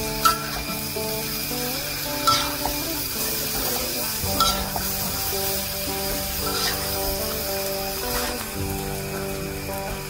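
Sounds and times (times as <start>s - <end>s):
sharp metal clanks: 0.0s - 1.4s, 2.1s - 5.1s
light sizzle: 0.0s - 10.0s
metal spatula scraping a wok: 0.1s - 8.6s.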